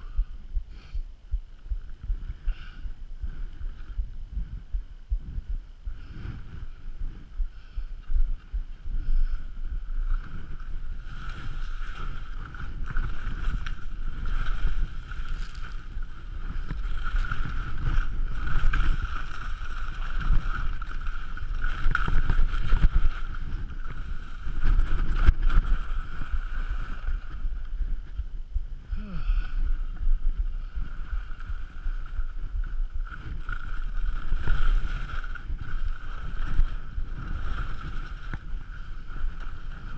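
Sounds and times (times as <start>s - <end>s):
wind on microphone: 0.0s - 39.9s
skis scraping over snow: 10.0s - 27.9s, 30.6s - 39.9s.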